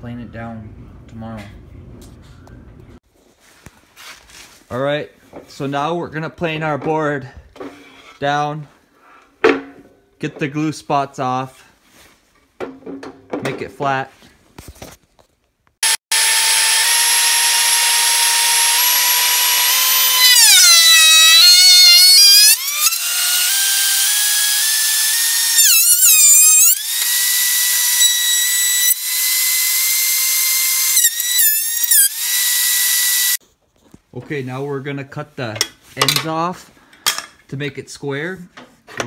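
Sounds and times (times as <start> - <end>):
thickness planer motor whine: 15.8 - 33.4.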